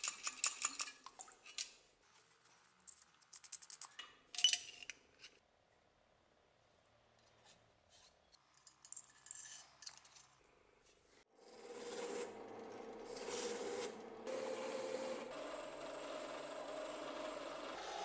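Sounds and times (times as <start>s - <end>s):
metal parts clicking and scraping: 0.0s - 1.8s, 2.8s - 5.4s, 7.2s - 10.5s.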